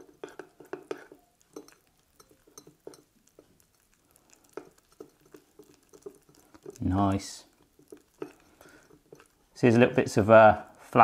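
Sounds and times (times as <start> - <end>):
utensil clinking in ceramic mug: 0.0 - 6.8, 7.8 - 9.4.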